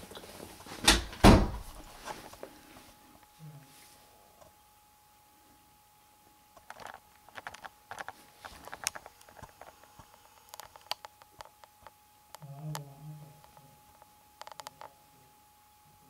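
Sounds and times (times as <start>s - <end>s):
faint steady hum: 0.0s - 16.0s
camera handling clicks and rustles: 6.6s - 11.7s.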